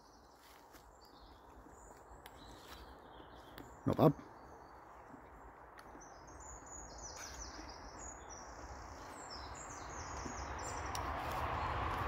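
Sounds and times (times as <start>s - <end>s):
songbird singing faintly: 0.0s - 12.0s
distant road traffic hum: 3.1s - 12.0s.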